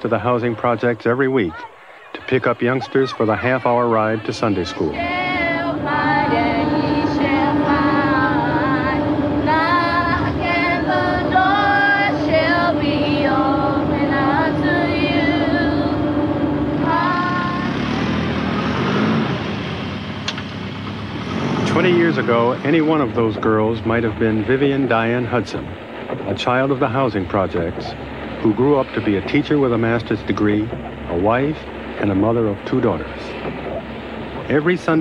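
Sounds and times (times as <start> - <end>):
voices singing unaccompanied: 0.0 - 19.6
bus engine drone: 0.0 - 35.0.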